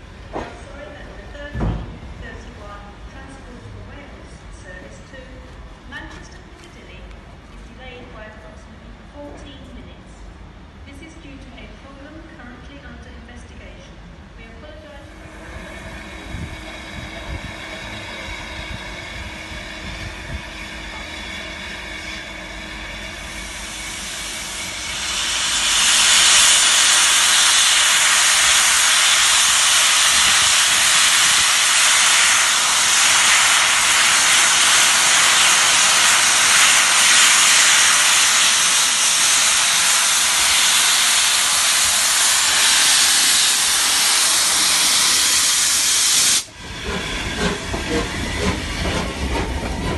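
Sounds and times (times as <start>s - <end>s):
soft engine hiss and hum: 0.2s - 26.5s
steam jetting with loud hiss: 15.2s - 49.9s.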